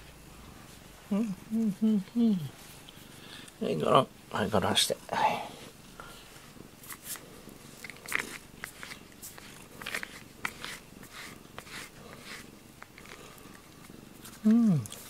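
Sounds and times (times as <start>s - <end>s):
brush rasping through cat fur: 7.9s - 14.4s.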